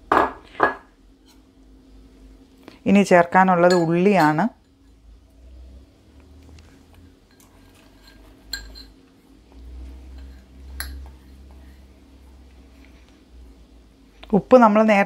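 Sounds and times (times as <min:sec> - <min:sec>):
sharp kitchenware clinks: 0:03.6 - 0:04.4.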